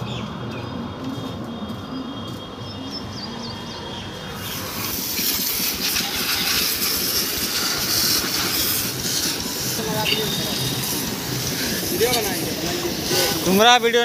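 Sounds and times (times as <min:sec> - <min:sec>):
hose water jet spraying: 0:04.2 - 0:14.0.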